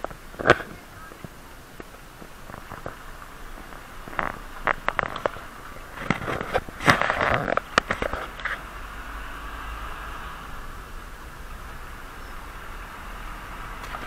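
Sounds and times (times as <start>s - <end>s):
tyres crunching over gravel: 0.0s - 9.1s
tyres rolling on pavement: 0.0s - 14.0s
wind noise: 0.0s - 14.0s.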